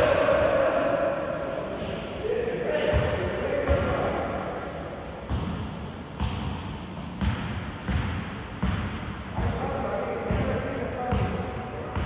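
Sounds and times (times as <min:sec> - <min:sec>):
gym hall murmur: 0:00.0 - 0:12.0
basketball bouncing on court: 0:05.3 - 0:12.0.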